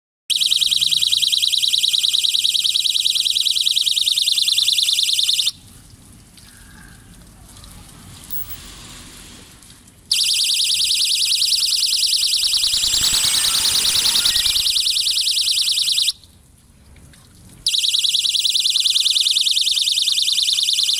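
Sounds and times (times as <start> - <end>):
pulsing high-pitched electronic alarm: 0.3 - 5.5, 10.1 - 16.2, 17.7 - 20.9.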